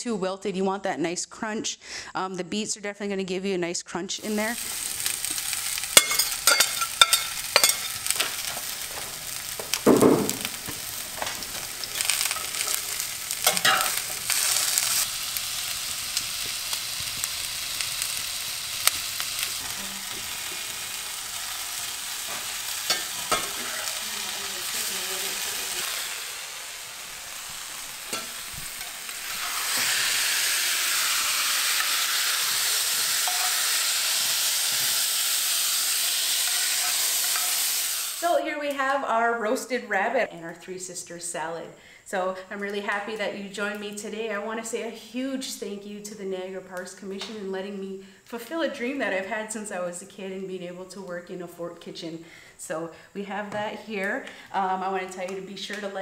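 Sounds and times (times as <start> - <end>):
vegetables sizzling in a skillet: 4.2 - 39.8
metal spatula scraping pan: 5.0 - 9.5, 10.8 - 15.1, 22.2 - 26.2, 28.0 - 33.7.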